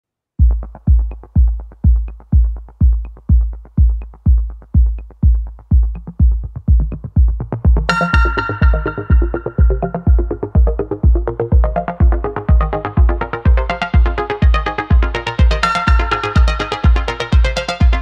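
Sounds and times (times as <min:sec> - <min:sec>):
kick drum beat with ticks: 0:00.4 - 0:18.0
bright synth chord: 0:07.9 - 0:10.8.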